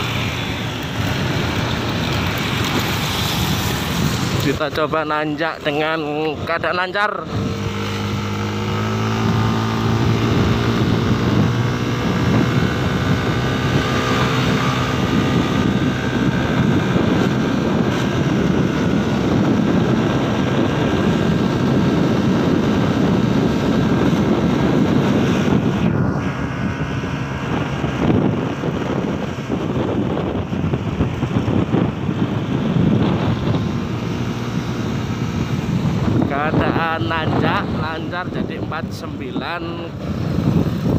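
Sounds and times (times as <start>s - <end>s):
scooter engine under load: 0.0s - 4.5s
wind rush on microphone: 0.0s - 40.9s.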